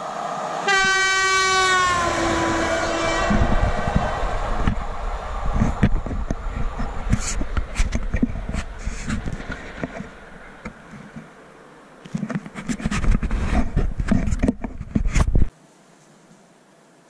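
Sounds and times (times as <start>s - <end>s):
wind on microphone: 1.9s - 10.8s, 12.7s - 15.5s
faint steady hiss: 8.6s - 12.6s, 15.5s - 17.0s.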